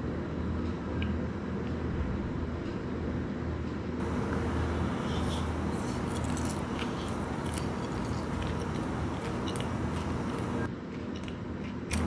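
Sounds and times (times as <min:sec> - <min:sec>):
steady low hum: 0:00.0 - 0:10.7
crisp shell crunching: 0:04.0 - 0:10.7.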